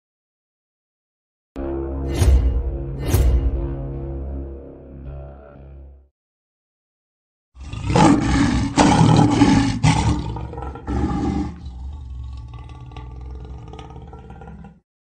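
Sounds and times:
lion growling: 7.6s - 14.8s
lion roaring: 7.6s - 14.8s.

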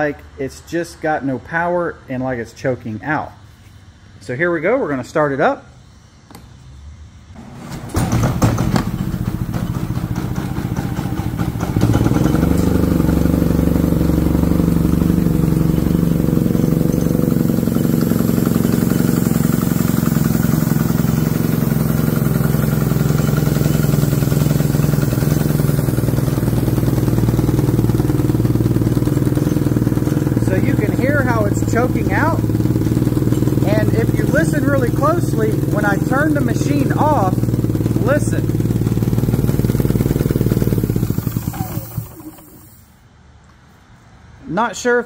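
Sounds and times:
generator engine running: 7.3s - 43.0s.

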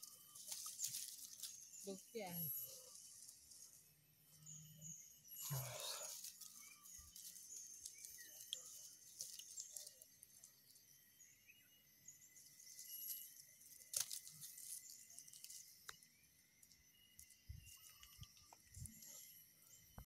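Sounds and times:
insect chirps: 0.0s - 20.0s
thin steady high tone: 0.0s - 20.0s.

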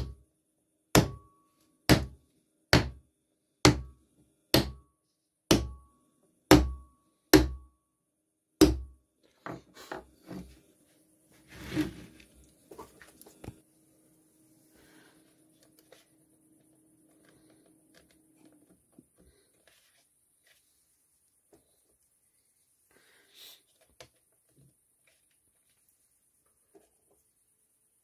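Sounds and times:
hammer knocking wooden block: 0.9s - 3.0s, 3.6s - 4.9s, 5.5s - 5.9s, 6.5s - 7.7s, 8.6s - 9.6s
wooden board handled on workbench: 11.4s - 13.6s.

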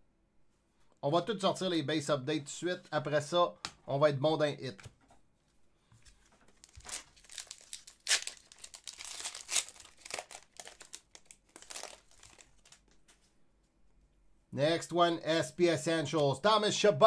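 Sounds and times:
card packaging crinkling: 6.1s - 13.1s.

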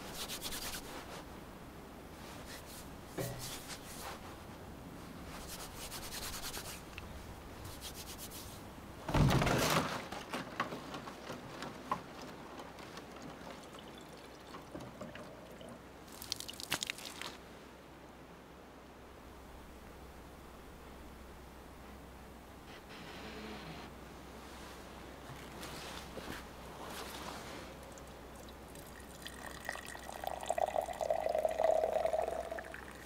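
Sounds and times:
plastic jug thumping down: 9.1s - 12.2s
water running into a container: 13.1s - 17.3s, 27.8s - 33.0s.

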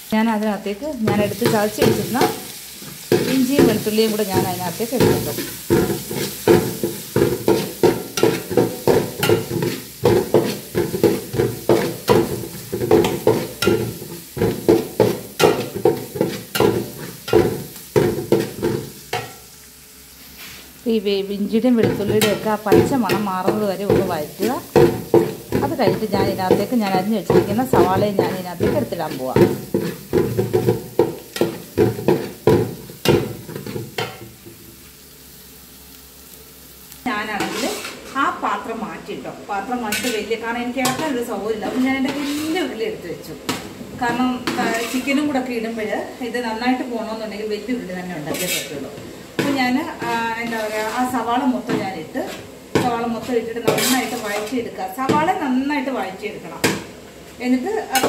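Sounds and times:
light sizzle: 0.0s - 58.0s
steel spatula scraping a metal pan: 1.0s - 19.4s, 21.8s - 34.2s, 37.3s - 38.3s, 39.8s - 42.8s, 44.1s - 45.4s, 48.2s - 51.2s, 52.2s - 54.7s.

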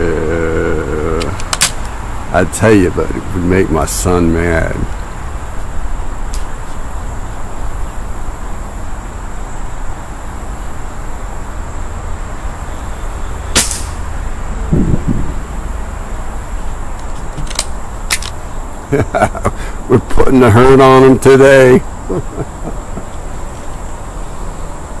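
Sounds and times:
air rifle shot: 13.5s - 14.1s.

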